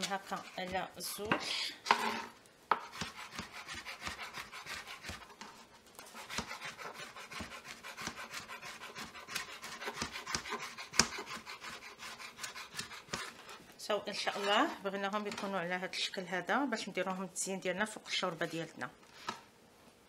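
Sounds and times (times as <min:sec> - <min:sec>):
knife chopping on plastic board: 0:02.7 - 0:05.3, 0:06.2 - 0:13.4.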